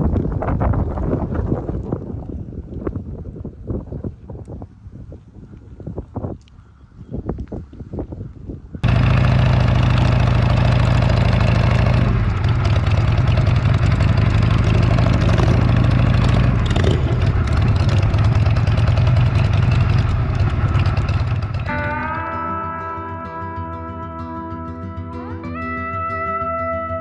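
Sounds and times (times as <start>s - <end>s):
motorcycle engine running: 8.8s - 22.3s.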